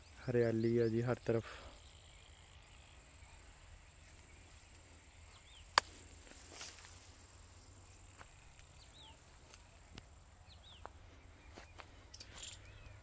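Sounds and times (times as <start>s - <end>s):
high insect drone: 1.1s - 10.5s
faint bird chirps: 7.5s - 13.0s.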